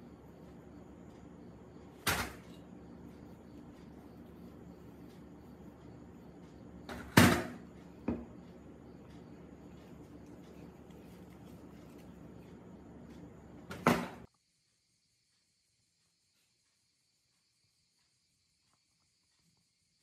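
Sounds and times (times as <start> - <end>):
low steady hum: 0.0 - 14.3.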